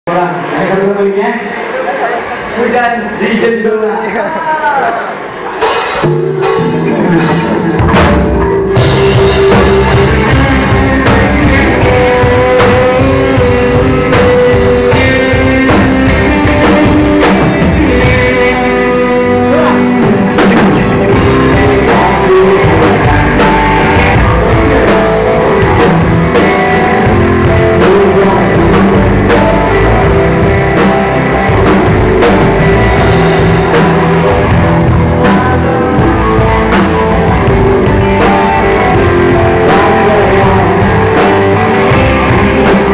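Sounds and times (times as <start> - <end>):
drums: 0.1 - 42.9
electric guitar: 3.8 - 42.9
bass: 5.4 - 42.9
person singing: 6.3 - 42.9.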